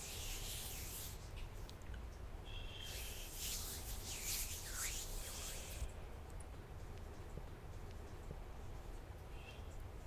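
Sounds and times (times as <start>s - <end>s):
hands rubbing together: 0.0s - 1.3s, 2.9s - 5.9s.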